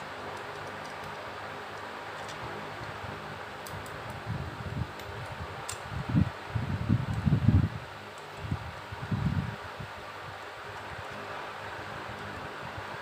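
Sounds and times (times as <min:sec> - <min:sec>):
fan-like background hiss: 0:00.0 - 0:13.0
wire clicking on screw terminals: 0:00.2 - 0:03.0, 0:03.6 - 0:04.2, 0:04.9 - 0:05.9.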